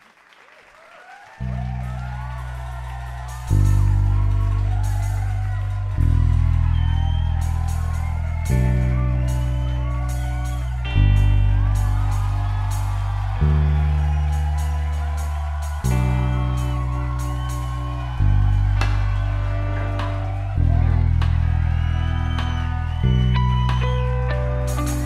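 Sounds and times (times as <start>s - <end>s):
crowd cheering and whooping: 0.0s - 25.0s
rock band playing live: 7.2s - 25.0s.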